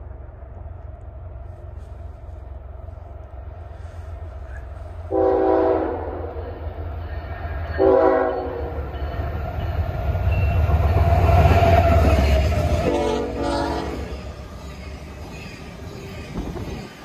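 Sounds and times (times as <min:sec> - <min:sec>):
diesel engine rumble: 0:00.0 - 0:05.2
locomotive air horn blasts: 0:05.1 - 0:06.6, 0:07.8 - 0:08.8, 0:12.8 - 0:14.1.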